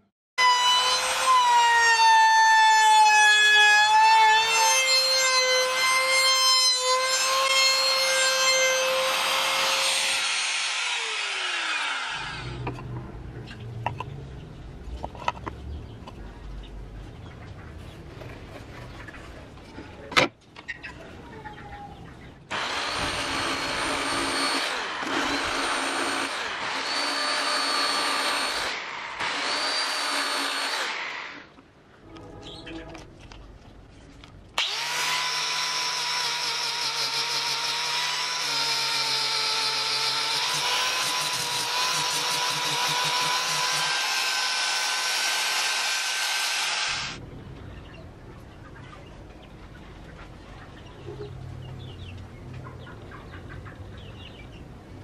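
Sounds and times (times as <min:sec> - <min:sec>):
machine cutting wood: 0:00.4 - 0:12.8, 0:22.5 - 0:31.2, 0:34.6 - 0:47.2
power tool motor whining: 0:03.8 - 0:12.7, 0:22.5 - 0:31.1, 0:34.6 - 0:47.2.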